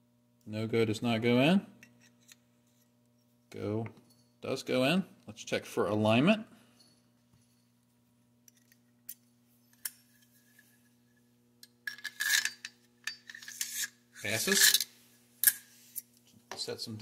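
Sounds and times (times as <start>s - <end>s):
metal scraping on metal: 11.9s - 16.0s.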